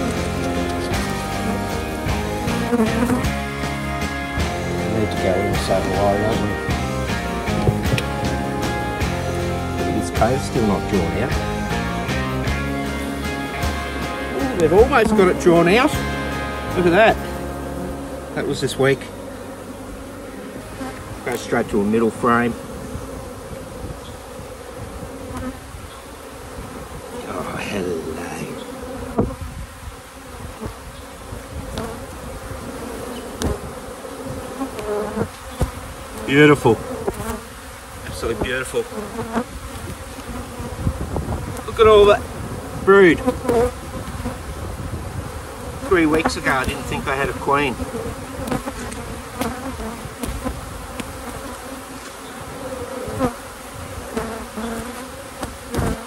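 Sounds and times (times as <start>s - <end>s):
honeybees buzzing: 0.0s - 56.0s
hive tool clicking on frames: 7.5s - 8.1s, 33.4s - 33.6s.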